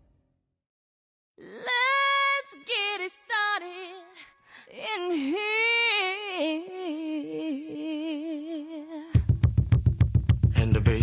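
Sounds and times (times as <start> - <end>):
woman singing with vibrato: 1.4 - 9.2.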